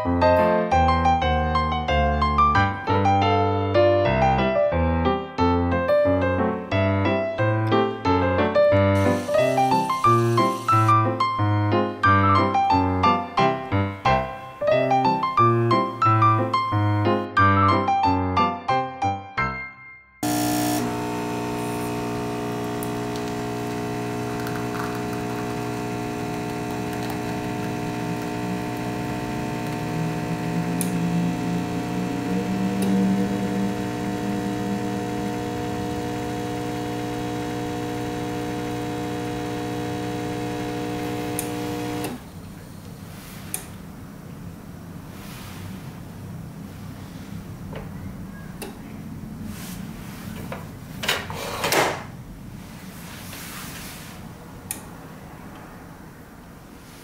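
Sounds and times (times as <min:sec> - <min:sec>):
espresso machine pump humming: 0:09.0 - 0:11.0, 0:20.2 - 0:42.4.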